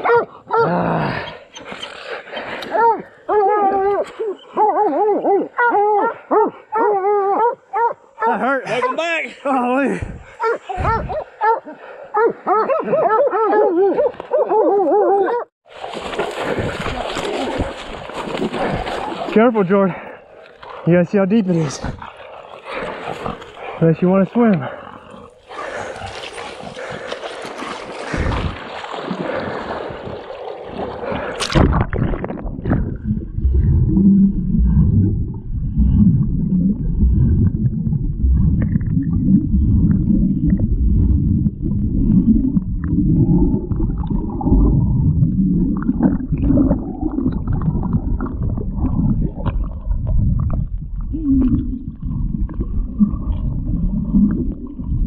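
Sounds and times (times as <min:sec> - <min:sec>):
water splashing: 0:15.6 - 0:55.0
underwater rumbling and gurgling: 0:29.3 - 0:55.0.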